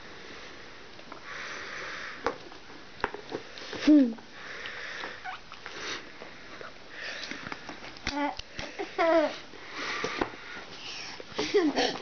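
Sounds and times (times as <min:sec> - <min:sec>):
baby babbling: 0:08.1 - 0:09.4.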